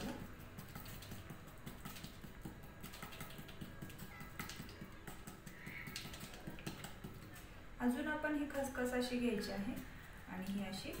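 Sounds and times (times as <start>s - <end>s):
fingertips patting dough: 0.0s - 7.5s.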